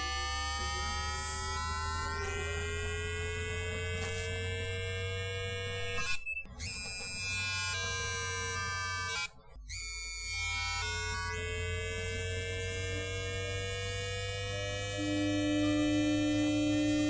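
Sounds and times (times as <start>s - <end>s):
buzz with overtones: 0.0s - 17.0s
low hum: 11.4s - 17.0s.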